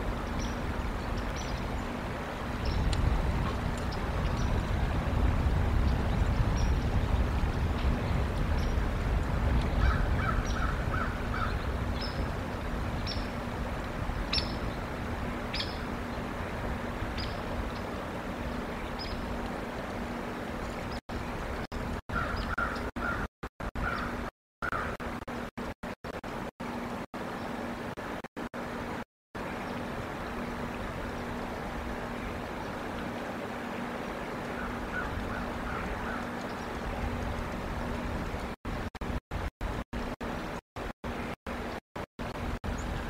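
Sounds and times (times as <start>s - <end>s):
low wind rumble: 0.0s - 25.4s, 26.7s - 43.0s
lower bird calls: 9.8s - 12.3s, 14.3s - 14.8s.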